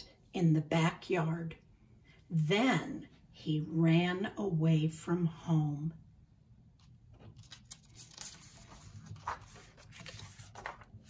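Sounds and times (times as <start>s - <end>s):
paper page rustling: 6.8s - 11.0s.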